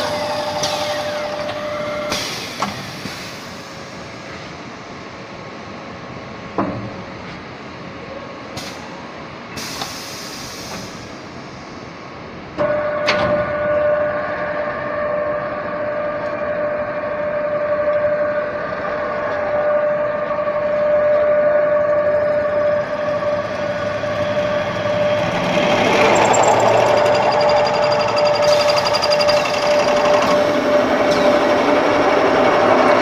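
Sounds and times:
machinery humming: 12.6 - 33.0
drill high whine: 22.8 - 31.1.

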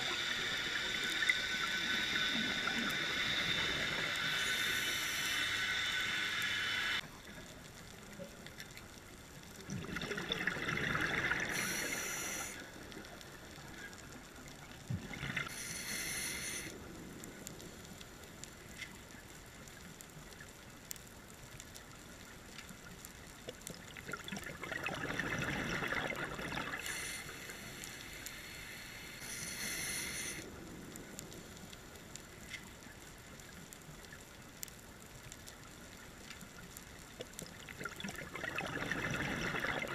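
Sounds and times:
regulator inhale hisses: 0.0 - 7.0, 11.5 - 12.8, 15.5 - 16.8, 26.8 - 30.6
low water background: 0.0 - 39.9
bubbling exhales: 9.7 - 12.6, 24.0 - 27.6, 37.6 - 39.9.

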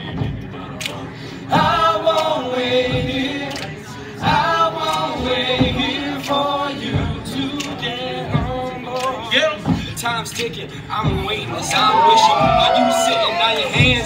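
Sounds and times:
men singing a cappella chords: 0.0 - 14.0.

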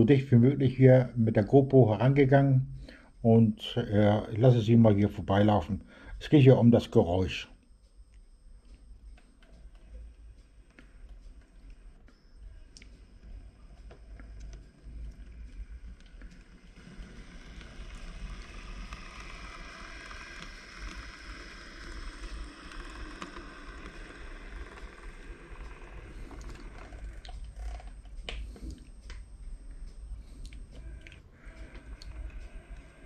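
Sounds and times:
model train whirring: 13.3 - 27.8, 30.8 - 33.0.

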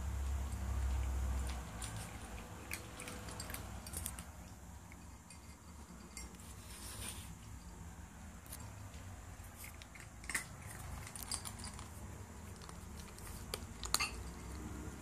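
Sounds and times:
cat chewing: 0.6 - 5.1, 8.6 - 15.0.

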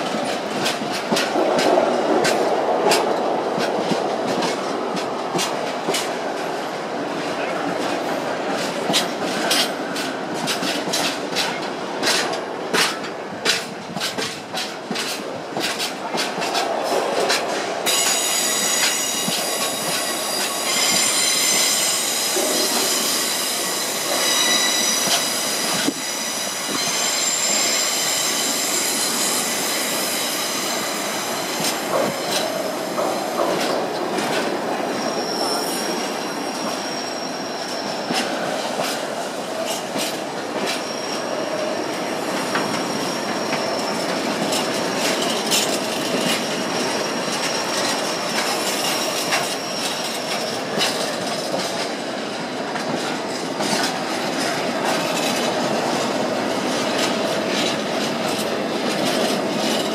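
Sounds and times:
train wheels clicking on rail joints: 0.0 - 59.9
high-pitched wheel squeal: 17.9 - 30.9, 34.9 - 38.2.

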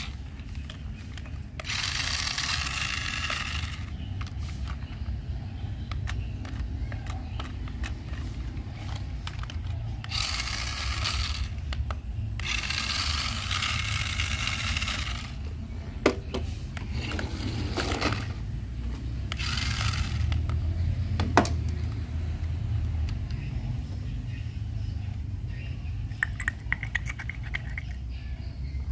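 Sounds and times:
toy car motor whirring: 0.0 - 5.2, 5.8 - 15.5, 16.7 - 18.4, 19.2 - 20.8.

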